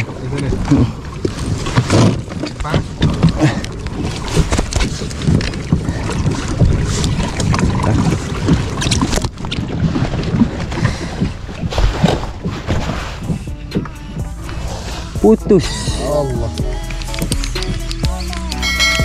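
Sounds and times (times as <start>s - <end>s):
wind buffeting microphone: 0.0s - 13.6s
paddle splashes: 0.0s - 15.2s
water slapping against hull: 0.0s - 15.2s.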